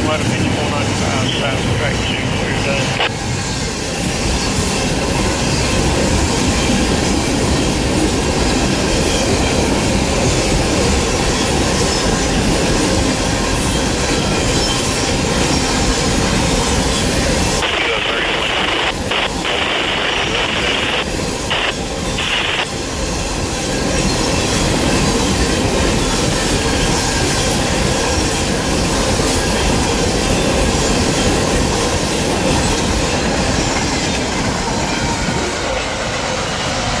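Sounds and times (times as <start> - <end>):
train wheels rumbling on rail: 0.0 - 37.0.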